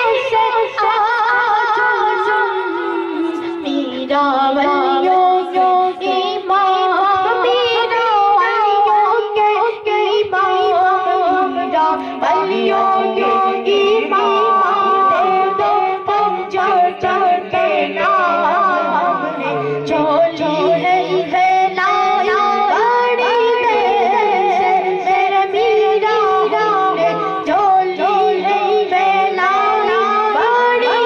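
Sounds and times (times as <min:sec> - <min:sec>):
boy singing into a microphone: 0:00.0 - 0:31.0
man singing along: 0:11.3 - 0:31.0.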